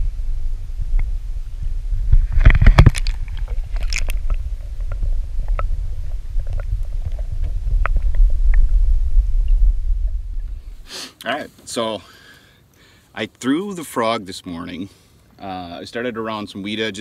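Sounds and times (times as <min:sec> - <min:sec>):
muffled underwater rumble: 0:00.0 - 0:10.9
underwater bubbling: 0:00.1 - 0:10.9
small underwater clicks: 0:02.1 - 0:10.2
water splashing: 0:02.1 - 0:10.9.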